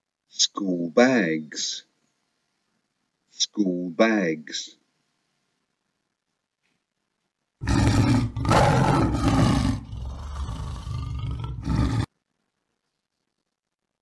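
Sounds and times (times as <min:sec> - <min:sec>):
tiger roaring: 0:07.6 - 0:12.1.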